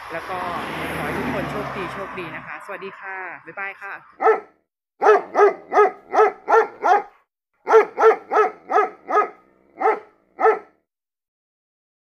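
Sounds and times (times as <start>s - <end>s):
dog barking: 4.2s - 10.8s.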